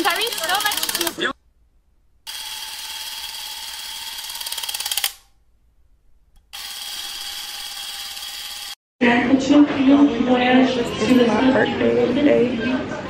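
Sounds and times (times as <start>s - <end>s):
rapid clicks: 0.0s - 1.2s.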